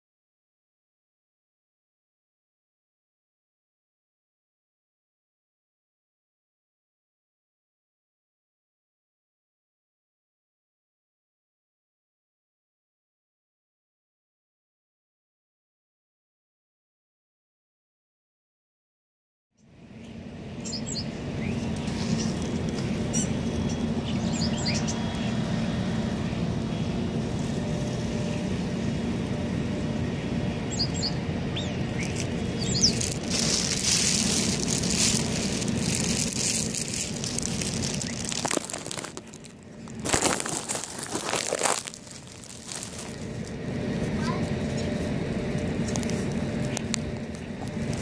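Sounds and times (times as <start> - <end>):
steady low rumble: 19.7 - 48.0
small birds chirping: 20.6 - 25.3, 30.7 - 40.0.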